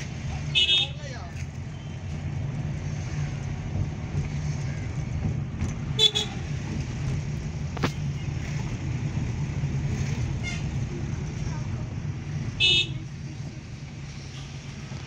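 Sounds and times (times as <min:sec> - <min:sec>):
car engine and road rumble: 0:00.0 - 0:15.0
car horn toot: 0:00.6 - 0:01.0, 0:06.0 - 0:06.4, 0:12.6 - 0:13.0.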